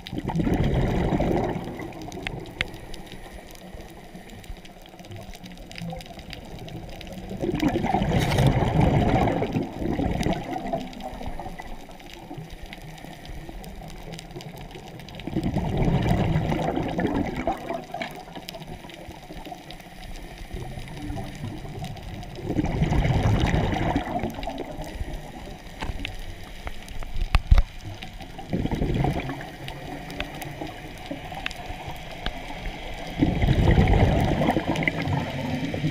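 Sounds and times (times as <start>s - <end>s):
quiet hiss: 0.0s - 35.9s
underwater bubbling bursts: 0.0s - 35.9s.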